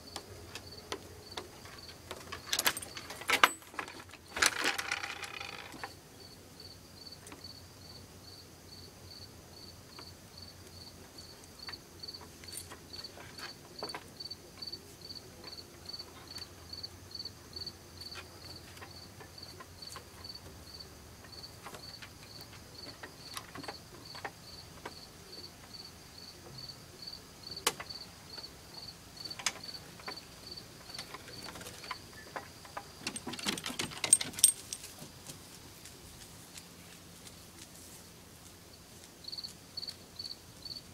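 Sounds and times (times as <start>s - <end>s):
cricket chirping: 0.0s - 35.4s, 38.7s - 40.9s
shuffling: 33.2s - 39.7s.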